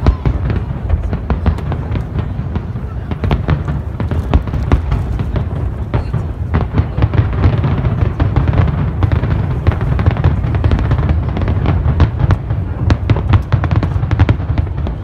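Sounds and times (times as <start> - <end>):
fireworks bangs and crackles: 0.0 - 15.0.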